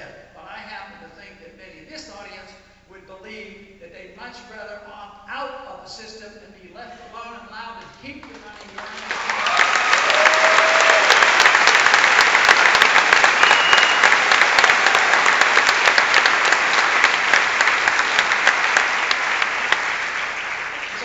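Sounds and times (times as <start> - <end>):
audience applauding: 8.2 - 21.0.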